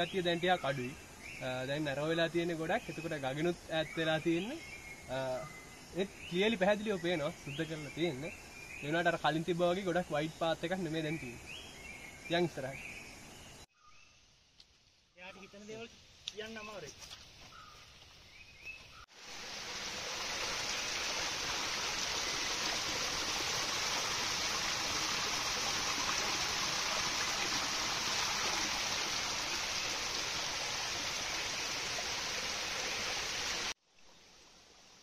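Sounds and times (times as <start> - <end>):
stream water rushing: 19.1 - 34.8.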